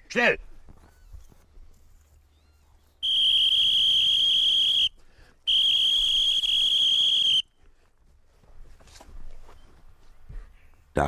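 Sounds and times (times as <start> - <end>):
dog whistle blasts: 3.0 - 4.9, 5.5 - 7.4.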